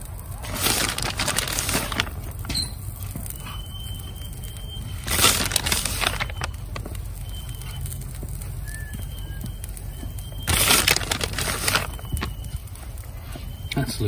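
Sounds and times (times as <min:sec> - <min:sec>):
steady low rumble: 0:00.0 - 0:14.0
plastic bag crinkling: 0:00.2 - 0:03.4, 0:04.4 - 0:08.8, 0:10.3 - 0:13.2.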